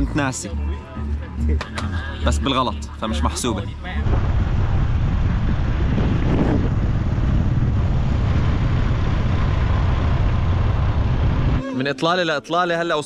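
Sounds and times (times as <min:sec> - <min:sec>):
vehicle running noise: 0:00.0 - 0:11.6
wind buffeting microphone: 0:04.0 - 0:11.6.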